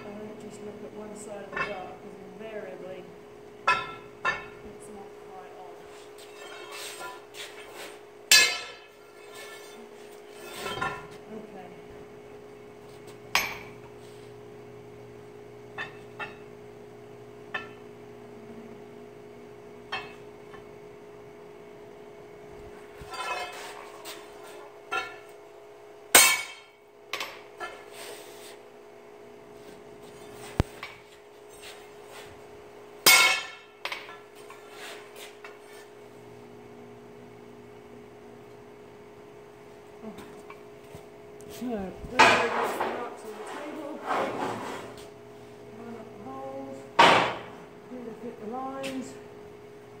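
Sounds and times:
steady hum: 0.0s - 50.0s
steel bar clinking on anvil: 8.3s - 8.9s, 26.2s - 27.4s, 33.1s - 34.2s.

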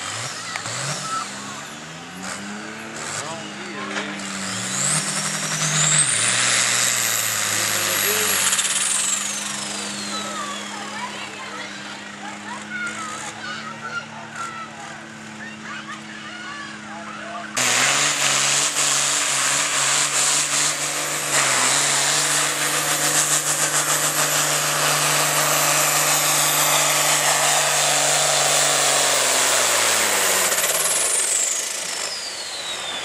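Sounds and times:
tractor diesel engine running hard: 0.0s - 33.0s
turbo whistle: 31.0s - 33.0s.

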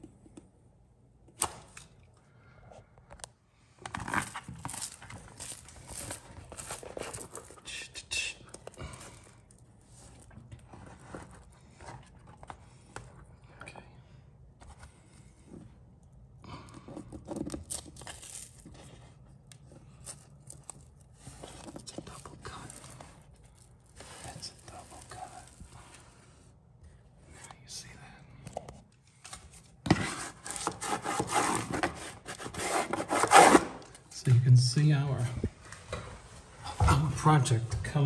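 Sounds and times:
wallpaper rustling and crinkling: 3.7s - 7.7s, 8.6s - 13.2s, 16.9s - 26.5s.

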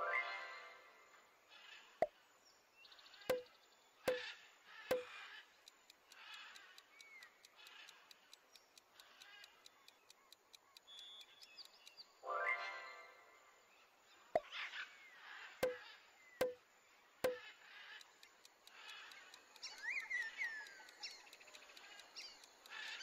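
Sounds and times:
sharp pops: 3.3s - 3.5s, 4.1s - 4.3s, 4.9s - 5.2s, 15.6s - 16.6s, 17.2s - 17.5s
countdown timer ticking: 4.1s - 4.3s, 4.9s - 9.0s.

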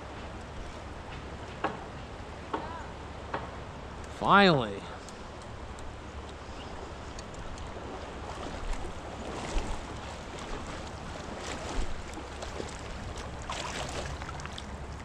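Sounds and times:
wind rumbling on microphone: 5.8s - 15.0s
fish splashing in water: 6.8s - 15.0s.

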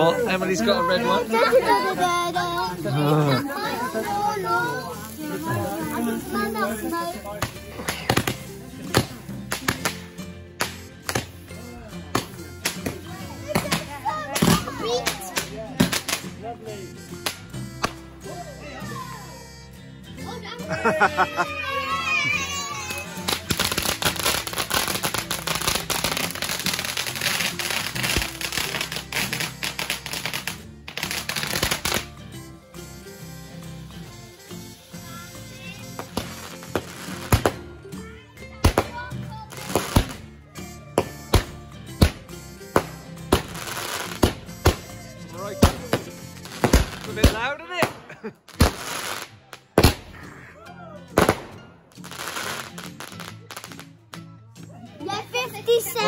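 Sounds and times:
firework fountain crackling: 0.0s - 16.4s, 22.5s - 32.2s, 34.1s - 37.7s, 38.6s - 40.3s, 41.1s - 50.2s, 51.2s - 53.9s
fireworks bangs: 45.6s - 50.2s.

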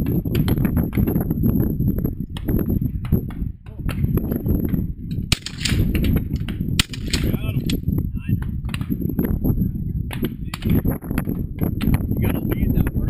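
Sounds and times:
wind rumble on microphone: 0.0s - 13.0s
shotgun shots with echo: 5.3s - 6.2s, 6.8s - 7.8s.

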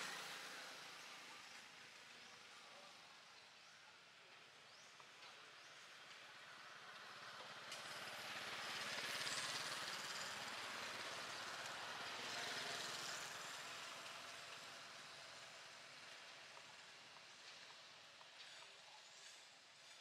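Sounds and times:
vehicle passing by: 6.7s - 16.0s.

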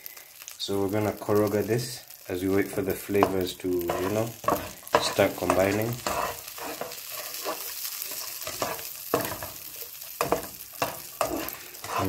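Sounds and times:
butter sizzling in a skillet: 0.0s - 12.0s
spatula scraping a pan: 2.6s - 12.0s.

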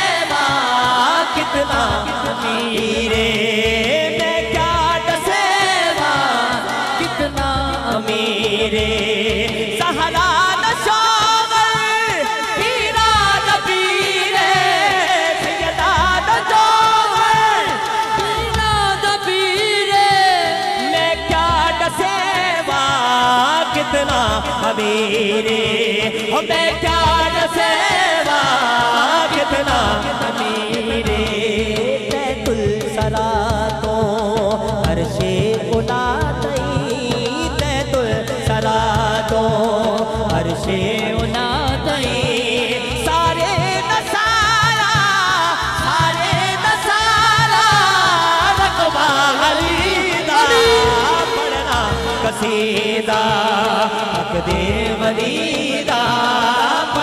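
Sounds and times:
man singing into a microphone: 0.0s - 57.0s
percussion beat: 0.0s - 57.0s
low drum beats: 50.3s - 52.8s.

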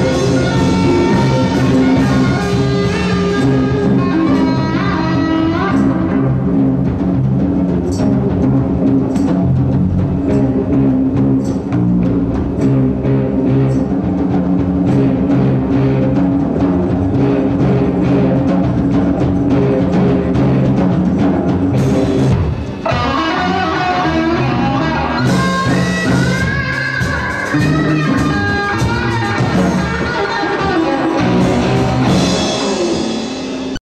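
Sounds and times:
live rock band playing: 0.0s - 33.8s.

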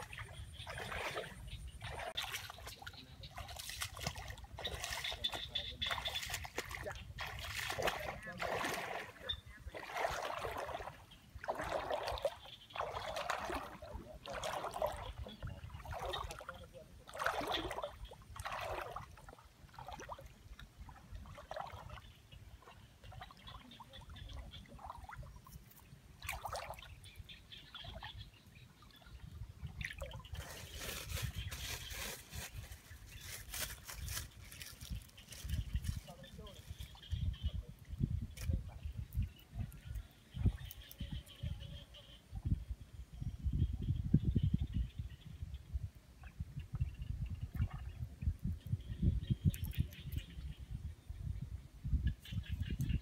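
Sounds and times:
hands splashing in water: 0.0s - 16.5s, 17.1s - 19.1s
wading steps in muddy water: 0.0s - 27.1s.

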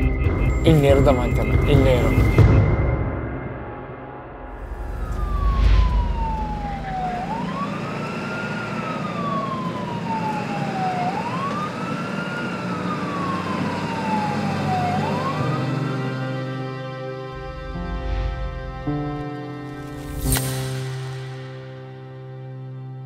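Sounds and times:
low rumble: 0.0s - 7.7s, 17.3s - 21.8s
siren wailing: 0.0s - 20.2s.

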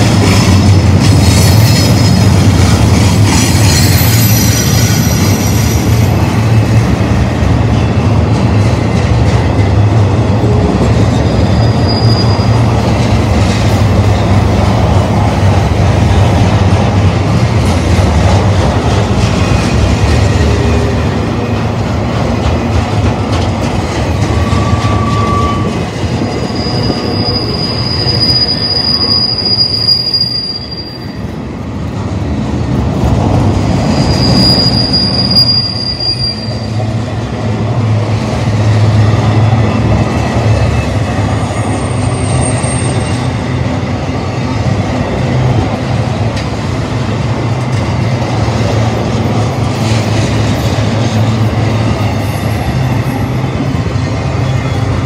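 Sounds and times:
train wheels rumbling and clacking: 0.0s - 55.0s
high-pitched wheel squeals: 3.5s - 5.9s, 11.2s - 12.8s, 24.3s - 31.3s, 33.9s - 36.8s.

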